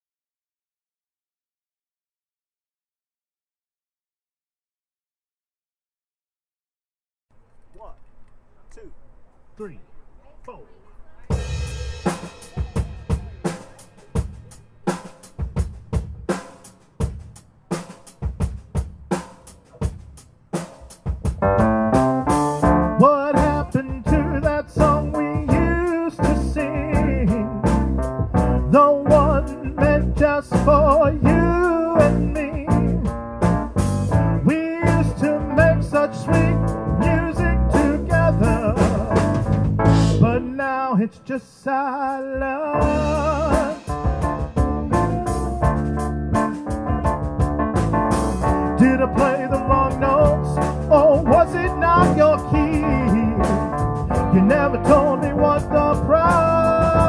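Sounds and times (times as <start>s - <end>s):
drum kit groove: 11.2s - 40.6s, 42.1s - 57.0s
bass guitar: 11.3s - 16.4s, 21.0s - 40.7s, 42.4s - 57.0s
electric guitars: 42.8s - 57.0s.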